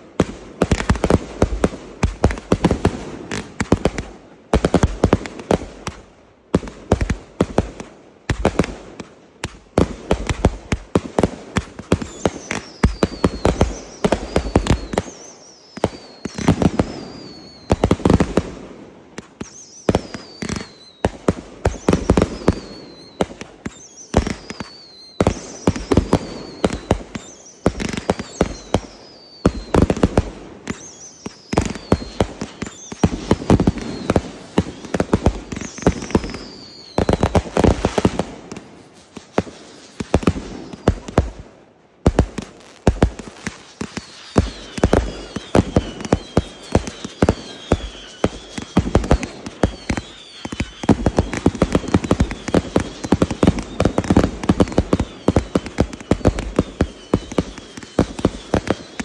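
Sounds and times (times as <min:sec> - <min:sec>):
fireworks bursting and crackling: 0:00.0 - 0:59.0
high falling whistle: 0:12.1 - 0:17.8, 0:19.4 - 0:21.1, 0:21.7 - 0:29.8, 0:30.7 - 0:37.6, 0:42.6 - 0:59.0.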